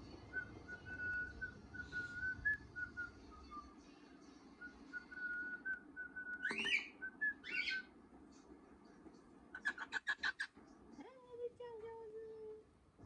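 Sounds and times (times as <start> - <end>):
bird chirps: 6.2 - 7.9.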